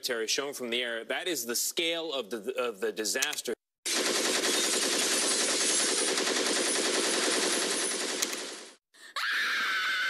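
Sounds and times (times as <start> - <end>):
rapid automatic gunfire: 3.9 - 8.8.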